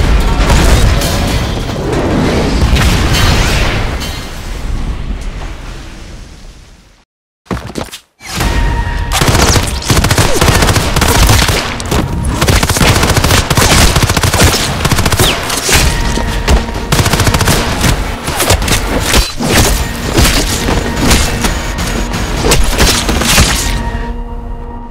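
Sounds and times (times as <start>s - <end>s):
booming impacts: 0.0s - 5.6s
music: 8.2s - 24.9s
rapid automatic gunfire: 9.2s - 15.5s, 16.9s - 18.3s.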